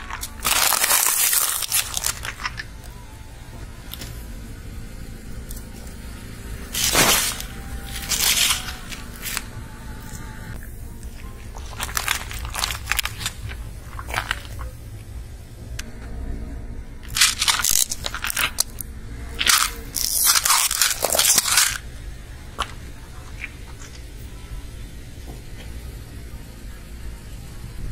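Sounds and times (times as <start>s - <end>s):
tyre crushing can and sweets: 0.0s - 2.9s, 6.7s - 9.5s, 11.1s - 14.9s, 17.0s - 18.8s, 19.4s - 21.9s.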